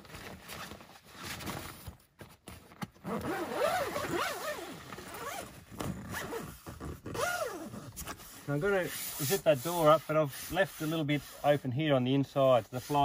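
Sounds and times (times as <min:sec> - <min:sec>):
zipper rasping on canvas: 0:03.0 - 0:11.5.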